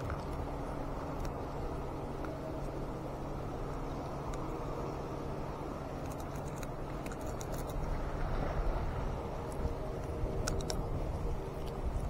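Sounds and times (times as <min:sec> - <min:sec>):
sea water sloshing: 0:06.1 - 0:12.0.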